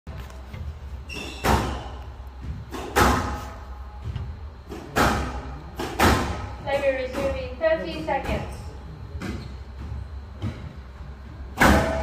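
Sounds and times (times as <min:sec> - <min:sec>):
high squeak: 0:01.1 - 0:01.9
squash ball cracks echoing: 0:02.7 - 0:03.6, 0:04.7 - 0:07.5, 0:11.5 - 0:12.0.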